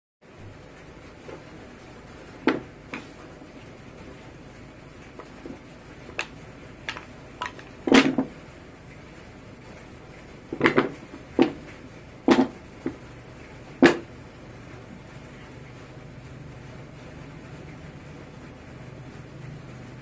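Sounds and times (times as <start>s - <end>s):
wooden pieces knocking and clacking: 5.2s - 8.3s, 10.5s - 11.7s, 12.3s - 12.6s.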